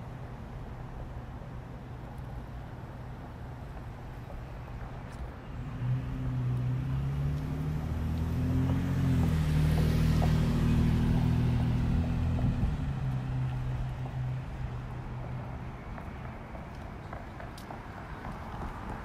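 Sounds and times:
road noise rush: 0.0s - 19.0s
car engine driving past: 5.5s - 16.4s.

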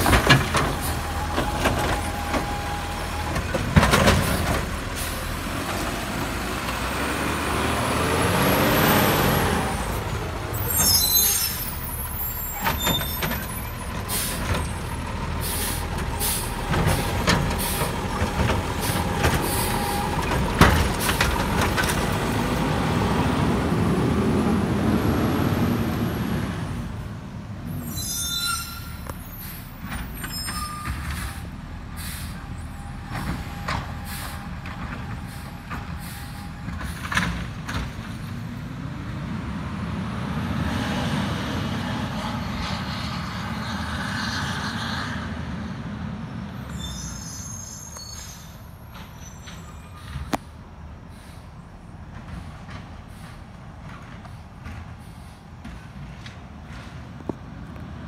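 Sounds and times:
knocks and clanks: 0.0s - 4.9s, 16.0s - 22.4s
garbage truck diesel engine: 0.0s - 58.0s
air brakes hissing: 9.6s - 20.4s, 27.6s - 34.6s, 35.2s - 37.2s, 46.6s - 51.9s, 54.2s - 55.8s.

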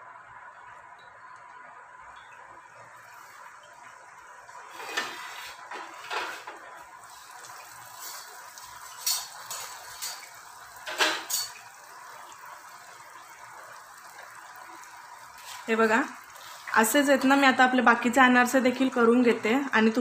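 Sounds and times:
dough frying in hot oil: 0.0s - 20.0s.

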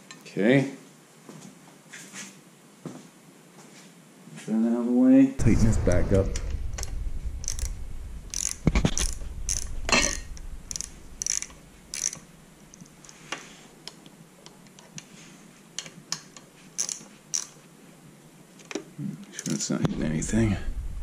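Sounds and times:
socket ratchet clicking: 7.4s - 7.7s, 8.3s - 13.2s, 16.2s - 17.6s.

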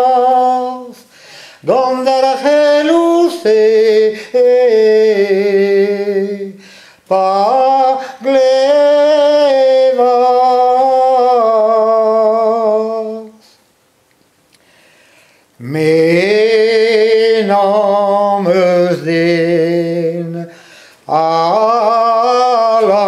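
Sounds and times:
man singing unaccompanied: 0.0s - 13.6s, 15.6s - 23.0s
breath: 1.0s - 1.6s, 6.6s - 7.1s, 14.6s - 15.5s, 20.5s - 21.0s.

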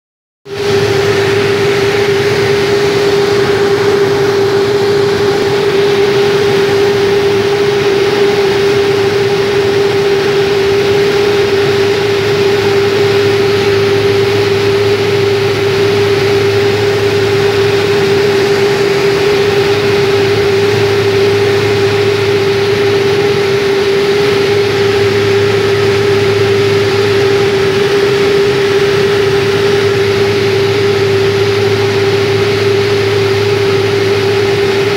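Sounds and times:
turboprop cabin hum: 0.5s - 34.9s.

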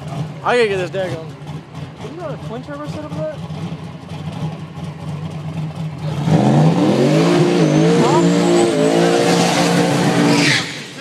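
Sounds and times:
tyres spinning and squealing: 0.0s - 11.0s
truck engine revving hard: 5.8s - 11.0s.

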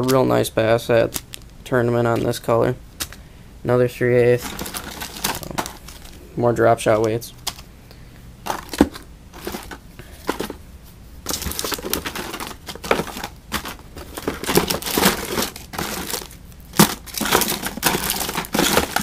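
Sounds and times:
plastic packaging crinkling: 4.3s - 6.2s, 8.5s - 10.6s, 11.2s - 19.0s.

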